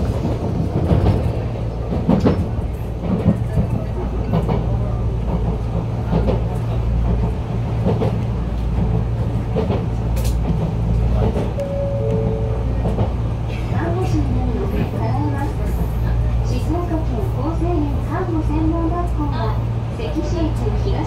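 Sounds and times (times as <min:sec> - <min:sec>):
train rumble and hum: 0:00.0 - 0:21.0
brief steady tone: 0:11.6 - 0:12.8.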